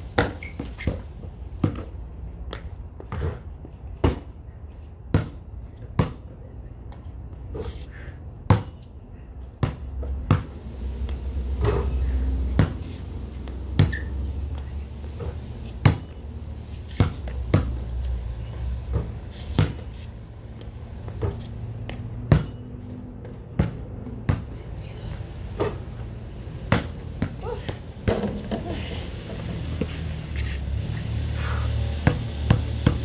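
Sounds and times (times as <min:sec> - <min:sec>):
basketball bouncing on concrete: 0:00.0 - 0:04.4, 0:05.1 - 0:06.4, 0:08.4 - 0:08.9, 0:09.6 - 0:16.2, 0:16.8 - 0:24.6, 0:25.6 - 0:30.5, 0:31.9 - 0:33.0
ball hitting backboard and rim: 0:09.6 - 0:10.6, 0:18.9 - 0:19.8, 0:22.3 - 0:22.6, 0:23.6 - 0:24.5, 0:26.6 - 0:28.7, 0:32.0 - 0:33.0.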